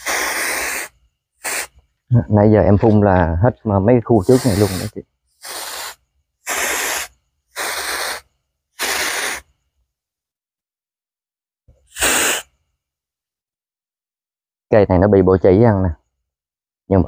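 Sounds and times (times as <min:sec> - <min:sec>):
hand sprayer hissing squirts: 0:00.0 - 0:01.8, 0:04.2 - 0:09.5, 0:11.9 - 0:12.5.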